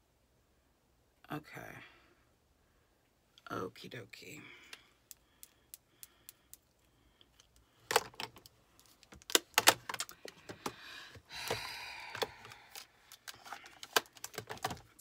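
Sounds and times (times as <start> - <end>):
plastic compacts clicking: 5.0 - 10.8, 11.4 - 15.0.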